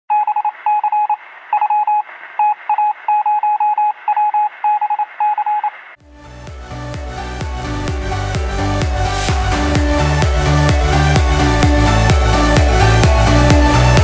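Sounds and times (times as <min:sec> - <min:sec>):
rapid radio beeping: 0:00.1 - 0:05.9
electronic dance music: 0:06.0 - 0:14.0.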